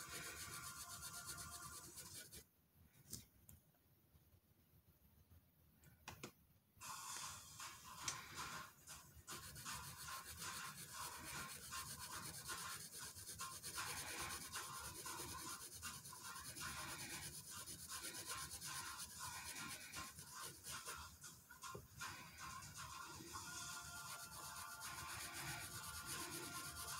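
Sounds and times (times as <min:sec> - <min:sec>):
marker scribbling on paper: 0:00.0 - 0:02.4, 0:06.8 - 0:26.9.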